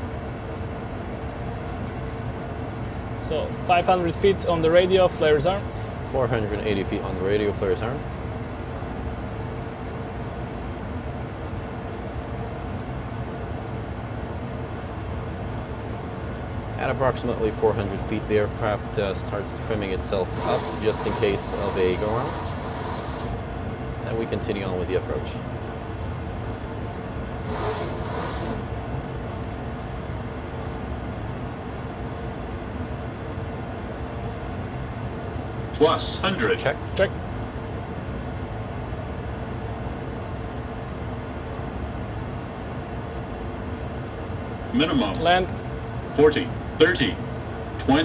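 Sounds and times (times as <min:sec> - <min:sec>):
engine and airflow rumble: 0:00.0 - 0:48.0.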